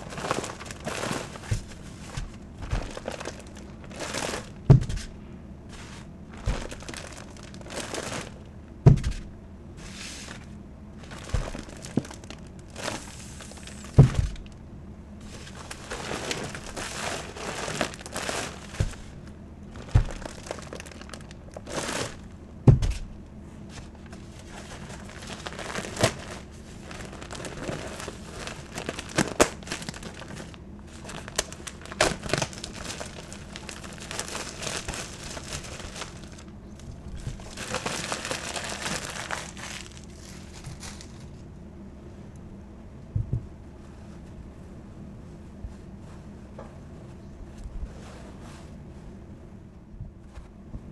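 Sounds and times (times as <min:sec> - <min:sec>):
plastic wrap crinkling and tearing: 0:00.0 - 0:05.0, 0:06.3 - 0:08.5, 0:11.0 - 0:14.6, 0:15.3 - 0:22.3, 0:24.0 - 0:41.4
dull thumps: 0:00.4 - 0:05.2, 0:06.4 - 0:08.0, 0:08.8 - 0:09.3, 0:11.1 - 0:12.2, 0:13.9 - 0:14.5, 0:15.8 - 0:19.2, 0:19.8 - 0:20.6, 0:22.6 - 0:23.2, 0:43.1 - 0:43.6.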